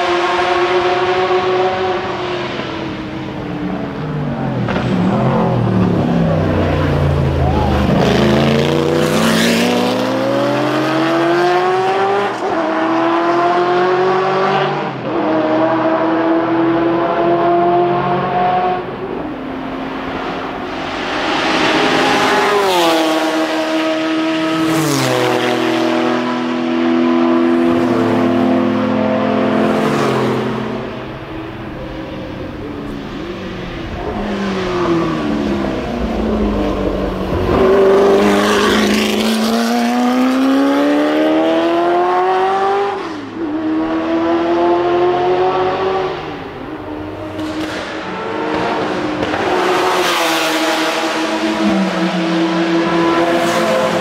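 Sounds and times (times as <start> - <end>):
racing car engines passing: 0.0 - 54.0.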